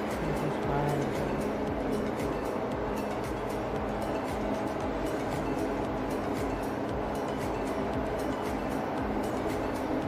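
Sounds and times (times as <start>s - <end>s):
background music with quick beat: 0.0s - 10.0s.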